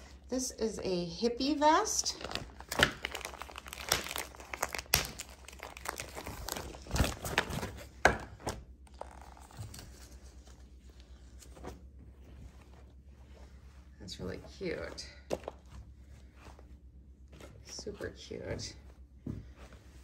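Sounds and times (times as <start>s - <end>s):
plastic bag crinkling: 1.9s - 7.9s, 8.8s - 10.4s.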